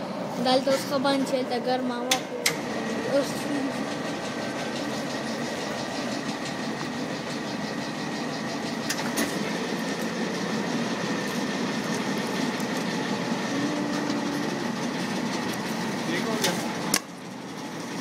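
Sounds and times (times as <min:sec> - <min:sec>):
machinery hum and whine: 0:00.0 - 0:18.0.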